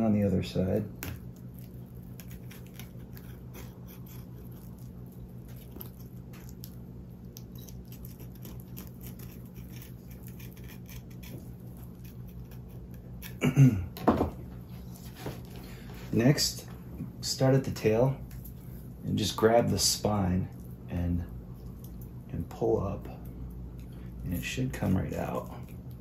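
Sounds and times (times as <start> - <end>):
steady low hum: 0.0 - 26.0
knife cutting through fish: 2.1 - 4.8.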